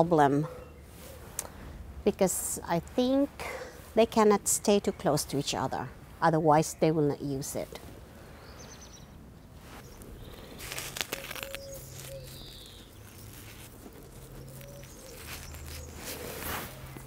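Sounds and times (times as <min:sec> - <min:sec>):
rustling of clothing and twigs: 0:00.3 - 0:01.8, 0:05.3 - 0:17.0
faint bird chirps: 0:09.8 - 0:13.7.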